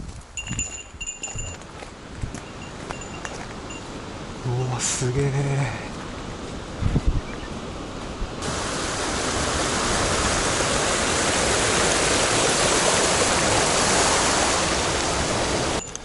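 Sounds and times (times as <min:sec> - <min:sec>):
loud rush of water: 0:08.4 - 0:15.9.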